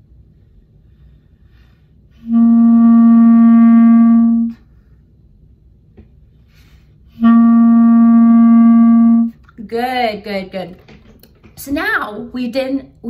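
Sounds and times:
clarinet long tone: 2.2 - 4.6, 7.1 - 9.4.

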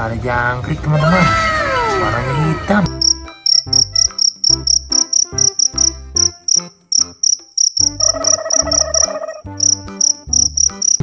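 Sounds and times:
cricket chirping: 2.9 - 11.0.

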